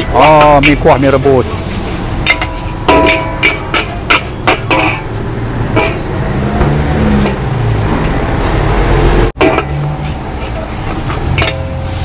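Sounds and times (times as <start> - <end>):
metal spatula clanking on wok: 0.0 - 1.1, 2.2 - 6.2, 9.4 - 12.0.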